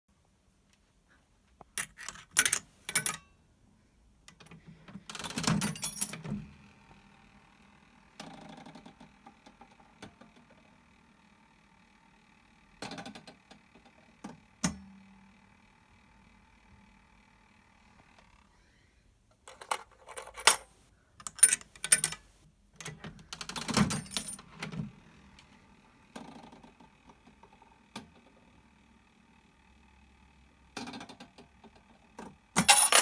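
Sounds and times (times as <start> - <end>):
slot machine clicks and clunks: 1.8 - 3.3, 19.5 - 22.3, 32.6 - 33.0.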